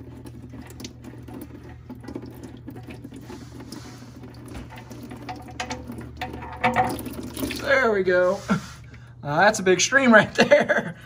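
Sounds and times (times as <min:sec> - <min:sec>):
oil pattering into a drain pan: 0:00.0 - 0:07.9
low steady hum: 0:00.0 - 0:11.0.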